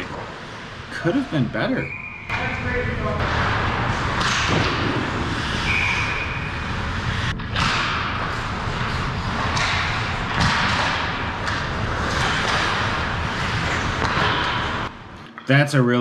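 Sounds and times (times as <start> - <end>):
skates scraping on ice: 3.2 - 14.9
hockey sticks and puck knocking: 3.3 - 5.5, 7.3 - 14.9.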